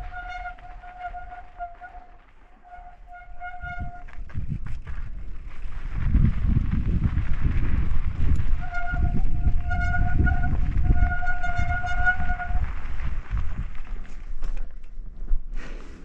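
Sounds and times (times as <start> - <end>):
bicycle brake squealing: 0.0 - 4.2, 8.5 - 12.7
wind rumble on microphone: 0.0 - 16.0.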